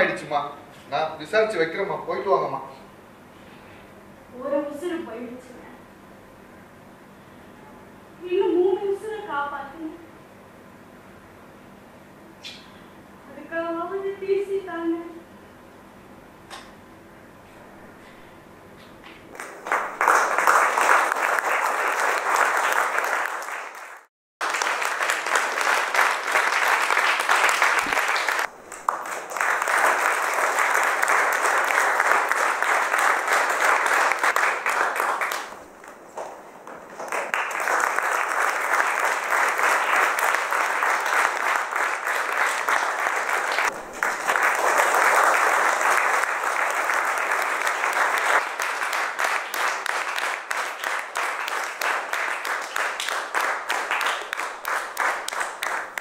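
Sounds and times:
audience applauding: 19.3s - 35.6s, 36.2s - 56.0s.

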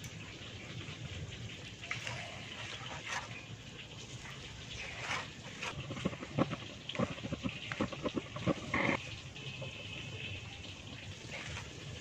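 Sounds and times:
batter swishing in pot: 1.7s - 9.0s.

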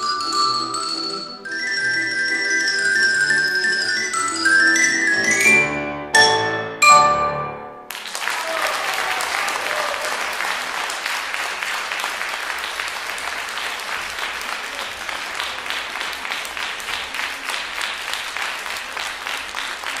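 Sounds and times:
audience applauding: 7.9s - 20.0s.

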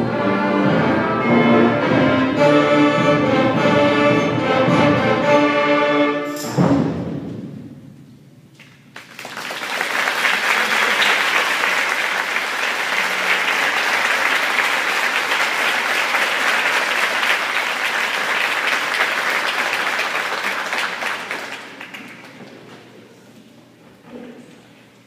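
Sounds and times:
audience applauding: 8.9s - 22.6s.

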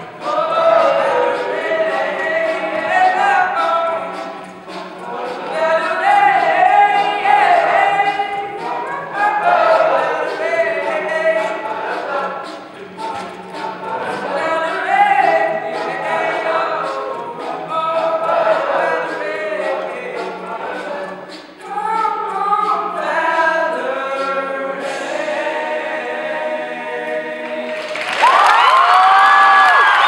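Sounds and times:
male a cappella group singing: 0.0s - 28.3s
vocal percussion clicks: 1.3s - 9.1s, 10.3s - 16.2s
audience cheering and applause: 27.6s - 30.0s.

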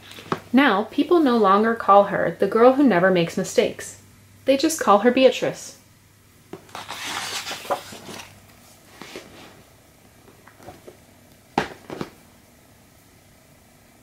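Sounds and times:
paper page rustling: 6.7s - 8.4s
book knocks: 11.6s - 12.2s.

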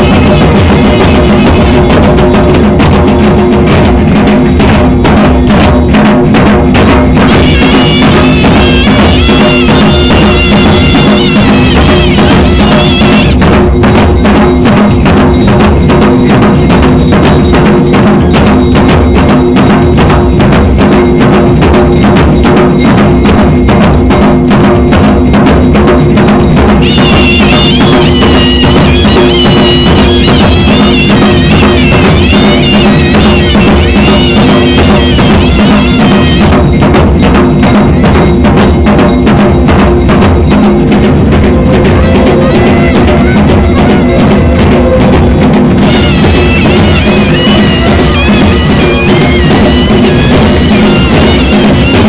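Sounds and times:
drums beaten with sticks: 0.0s - 52.0s
high wavering melody: 7.4s - 13.4s, 26.8s - 36.8s, 41.4s - 52.0s.

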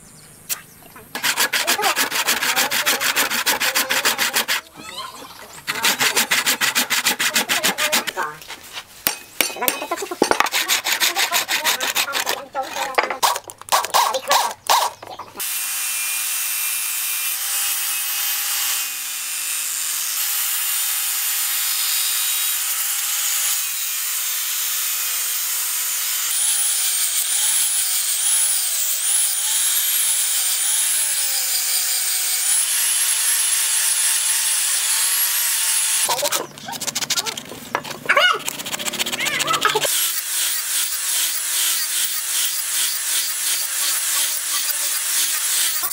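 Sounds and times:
hand sanding with sandpaper: 1.1s - 4.7s, 5.5s - 9.0s, 10.0s - 12.9s, 36.0s - 45.9s
rapid rasping strokes: 1.1s - 4.7s, 5.4s - 9.1s, 10.0s - 15.0s, 36.0s - 45.9s
angle grinder cutting: 1.1s - 4.9s, 5.5s - 8.3s, 9.4s - 45.9s.

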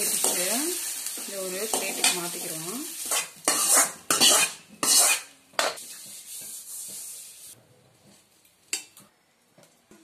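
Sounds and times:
hot oil sizzling: 0.0s - 7.6s
metal ladle scraping a pan: 3.0s - 7.2s.

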